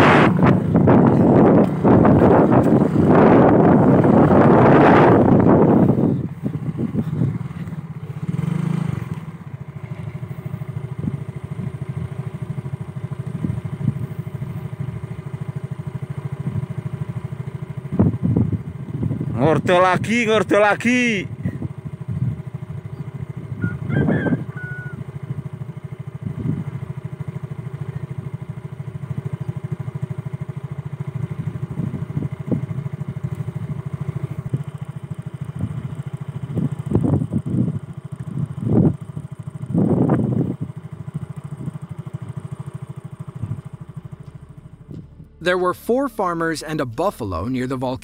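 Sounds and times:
motorcycle engine idling: 0:00.0 - 0:48.0
short louder sounds: 0:43.2 - 0:48.0.

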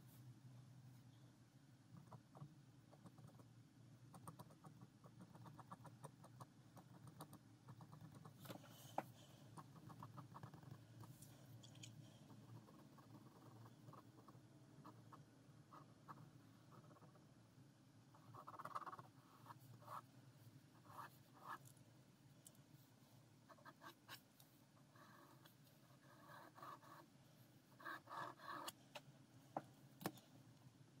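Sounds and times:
pen scratching on paper: 0:04.4 - 0:11.2, 0:12.2 - 0:17.2, 0:18.2 - 0:20.1, 0:20.8 - 0:21.6, 0:23.5 - 0:24.2, 0:24.8 - 0:27.1, 0:27.7 - 0:28.8.

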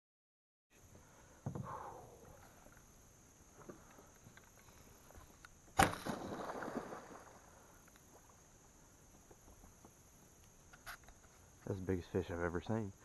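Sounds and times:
sharp splash: 0:05.8 - 0:07.6.

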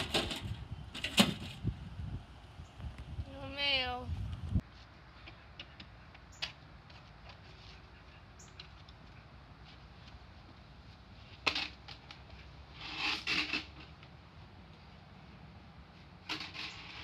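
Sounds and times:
rake scraping concrete: 0:11.2 - 0:14.2, 0:16.0 - 0:17.0.

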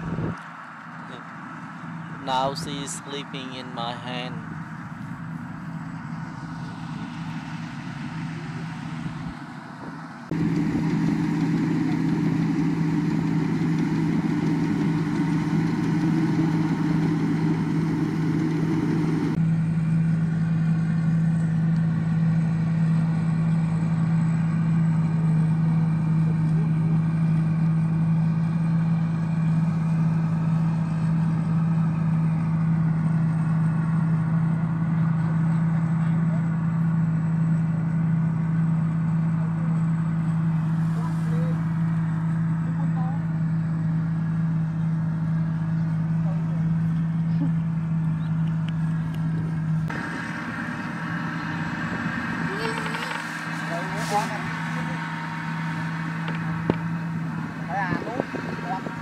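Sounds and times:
combine harvester engine drone: 0:00.0 - 0:59.0.

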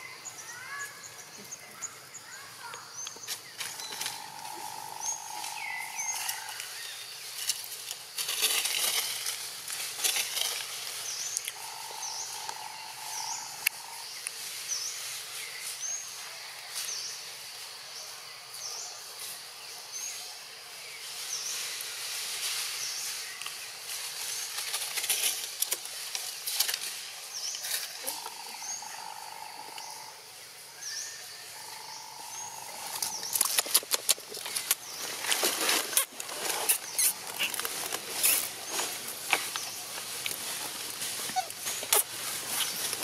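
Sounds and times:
steady high hiss: 0:00.0 - 0:43.0
rustling: 0:03.2 - 0:12.4, 0:21.1 - 0:28.2, 0:32.7 - 0:43.0.

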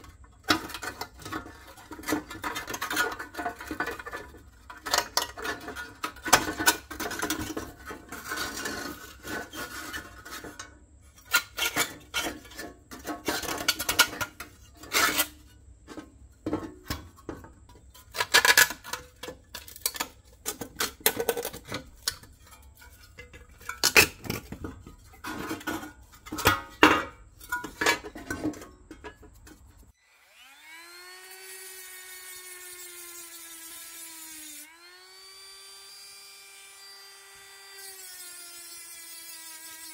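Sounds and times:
metal parts clanking and scraping: 0:00.0 - 0:29.9
rotary tool grinding whine: 0:30.0 - 0:39.9.

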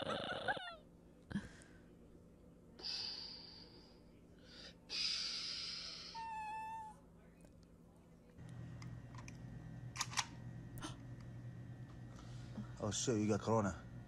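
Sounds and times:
dog whining: 0:00.0 - 0:00.8, 0:06.0 - 0:07.0.

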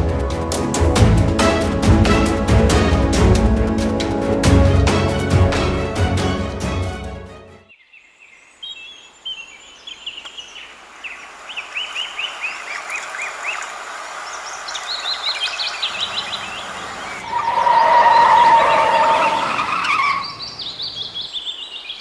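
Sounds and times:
background music: 0:00.0 - 0:07.7
birds chirping: 0:07.7 - 0:22.0
steady outdoor hiss: 0:07.7 - 0:22.0.

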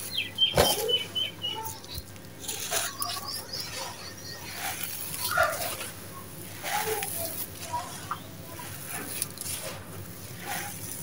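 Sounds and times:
bird chirping: 0:00.0 - 0:05.6
gritty crunching by hand: 0:00.0 - 0:11.0
grit trickling: 0:01.6 - 0:11.0.

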